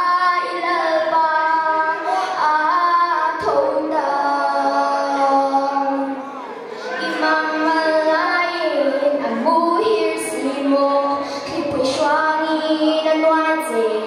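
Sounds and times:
girl singing into a microphone: 0.0s - 14.0s.

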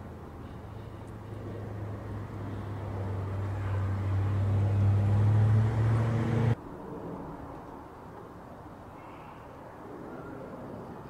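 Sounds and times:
jet airliner engine rumble: 0.0s - 5.4s.

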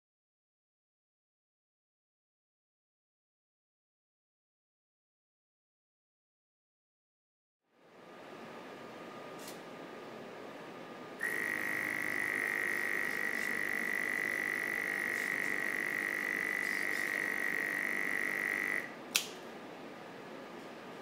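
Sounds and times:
robot motor high whine: 11.2s - 18.9s
sharp click: 19.1s - 19.4s.

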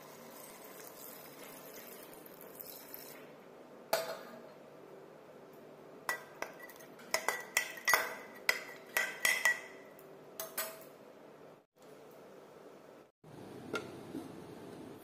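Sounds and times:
spoon clinking metal pot: 6.1s - 9.8s.

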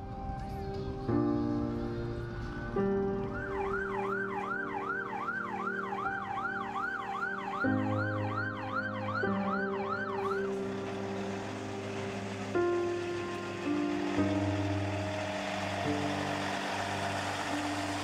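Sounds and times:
background music with held notes: 0.0s - 18.0s
siren yelping: 3.4s - 10.5s.

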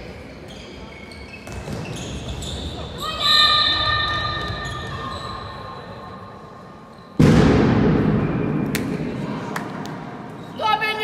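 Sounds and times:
loud bang with echo: 7.2s - 10.1s.

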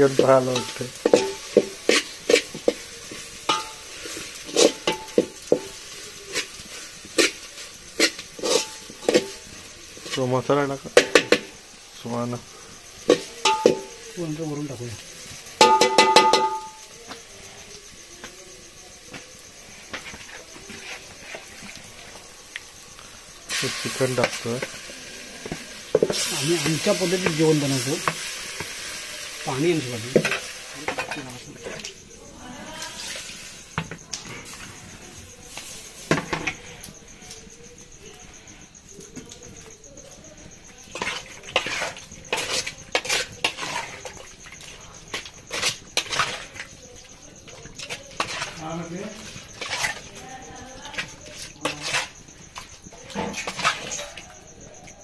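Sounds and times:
faint steady sizzle: 0.0s - 55.0s
spoon tapping pot: 0.1s - 3.9s, 4.5s - 5.8s, 13.1s - 14.0s, 15.6s - 16.8s
spoon stirring in cooking pot: 0.1s - 10.2s, 19.8s - 22.8s, 38.2s - 54.7s.

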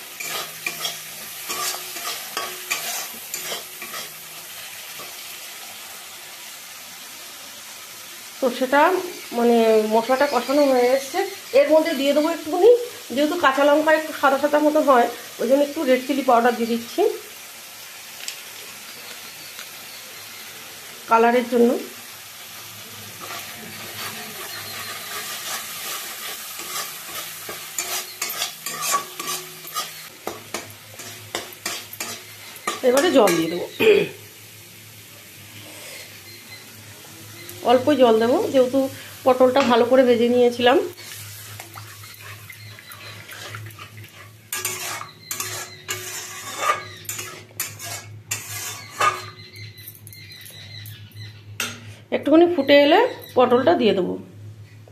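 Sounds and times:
metal spatula scraping pan: 0.0s - 5.2s, 23.1s - 33.6s, 40.9s - 49.6s
spice paste sizzling in oil: 0.0s - 54.0s.

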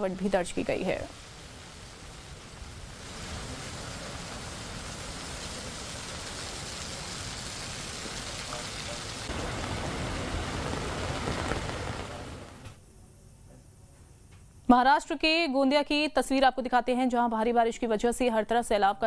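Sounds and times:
heavy rain on pavement: 0.2s - 12.8s.

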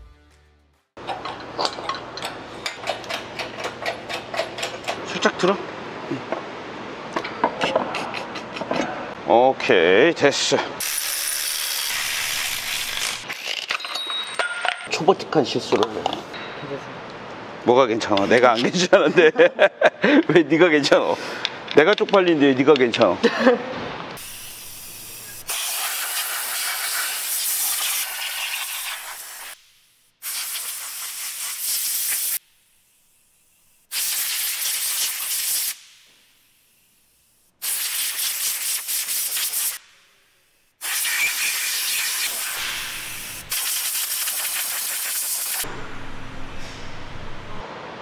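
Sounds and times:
aerosol spray: 24.2s - 32.4s, 33.9s - 36.0s, 36.6s - 39.8s, 40.8s - 45.7s
compressed air blasts: 24.2s - 33.2s, 33.8s - 40.0s, 40.8s - 45.7s.

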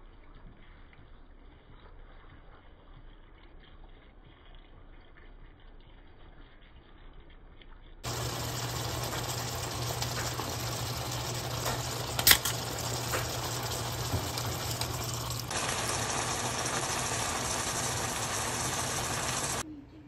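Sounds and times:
steak and onions sizzling: 8.0s - 19.6s.

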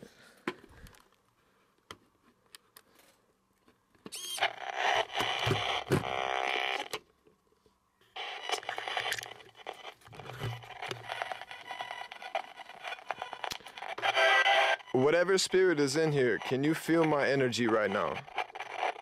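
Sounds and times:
broken radio broadcast snatches: 4.2s - 6.9s, 8.2s - 19.0s
bursts of radio static: 8.2s - 19.0s.

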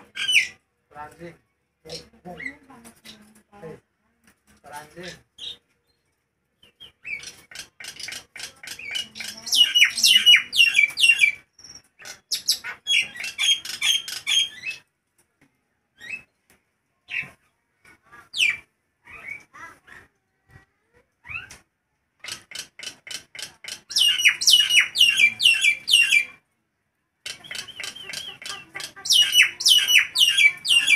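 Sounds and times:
myna bird shrill whistled calls: 23.9s - 26.4s, 29.1s - 30.9s.

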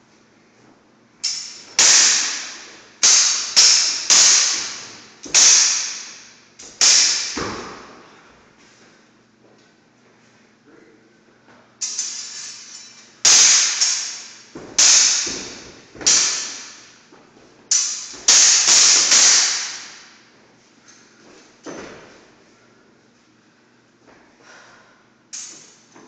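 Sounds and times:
swords clashing blade on blade: 1.2s - 7.5s, 11.8s - 16.8s, 17.7s - 20.1s.

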